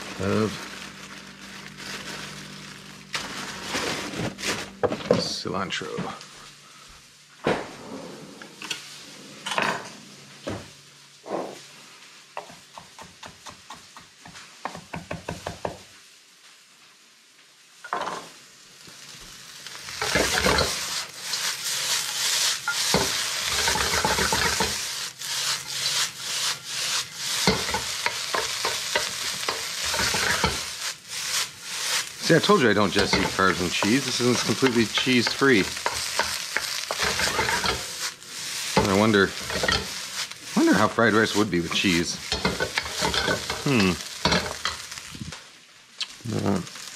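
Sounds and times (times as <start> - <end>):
wooden spatula scraping wok: 0.0 - 5.2, 19.7 - 45.1
rice sizzling in a wok: 0.0 - 7.5, 8.6 - 46.9.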